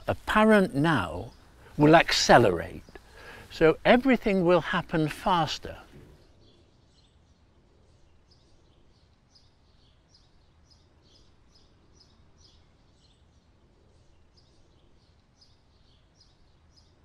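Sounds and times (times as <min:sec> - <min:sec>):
small bird chirping: 0:05.7 - 0:17.0.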